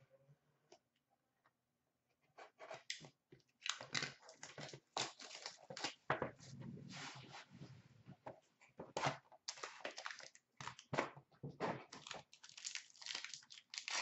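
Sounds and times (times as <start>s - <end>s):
plastic shrink wrap tearing: 11.9s - 14.0s.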